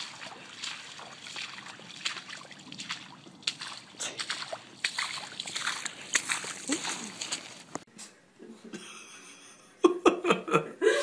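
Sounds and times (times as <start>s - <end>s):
footsteps splashing through water: 0.0s - 7.9s.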